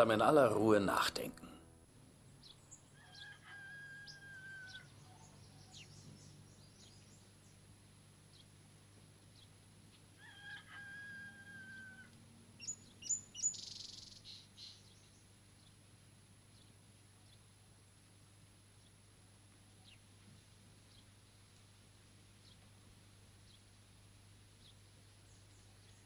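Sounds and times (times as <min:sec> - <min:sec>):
bird chirps: 0:12.6 - 0:15.2.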